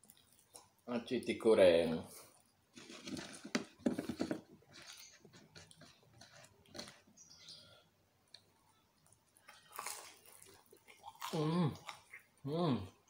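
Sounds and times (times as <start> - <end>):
mouth chewing with clicks: 8.3 - 12.4.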